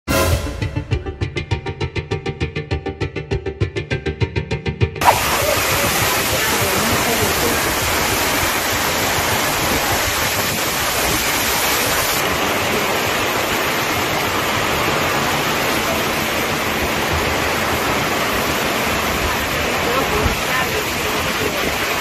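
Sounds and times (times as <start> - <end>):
floodwater rushing: 5.0 - 22.0
heavy rain: 5.0 - 22.0.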